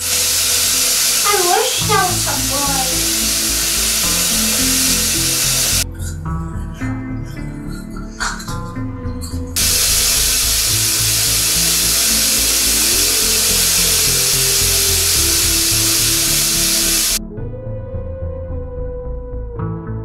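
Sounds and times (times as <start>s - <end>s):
tap water running into sink: 0.0s - 5.8s, 9.6s - 17.2s
soft background music: 0.0s - 20.0s.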